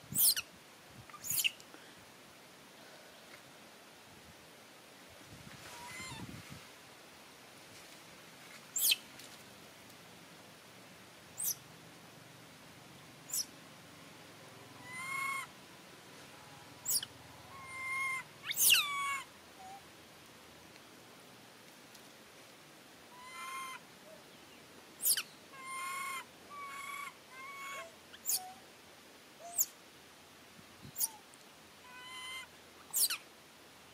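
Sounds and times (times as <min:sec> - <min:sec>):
monkey high squeaks: 0:00.2 - 0:00.4, 0:01.2 - 0:01.5, 0:08.8 - 0:09.0, 0:17.7 - 0:19.2, 0:25.0 - 0:25.2, 0:28.2 - 0:28.5, 0:32.9 - 0:33.2
monkey cooing: 0:16.9 - 0:19.8.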